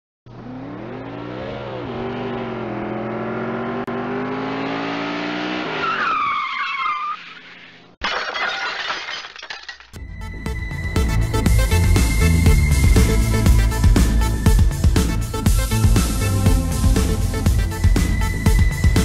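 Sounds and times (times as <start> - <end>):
car engine revving: 0.3 - 5.9
tires screeching: 0.3 - 8.0.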